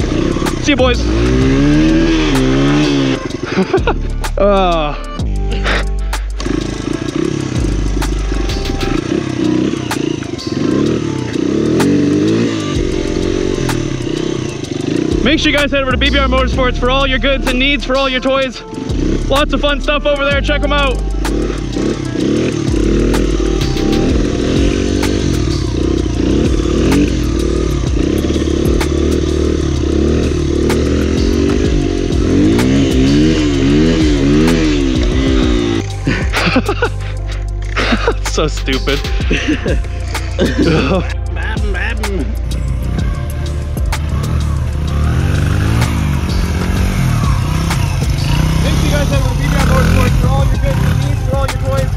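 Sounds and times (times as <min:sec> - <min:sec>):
dirt bike engine revving: 0:00.0 - 0:51.9.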